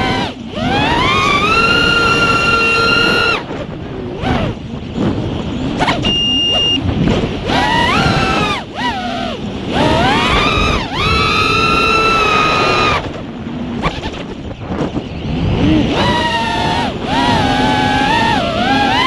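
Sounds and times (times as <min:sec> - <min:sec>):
quadcopter motors whining: 0:00.0 - 0:19.0
short steady high tone: 0:05.9 - 0:06.8.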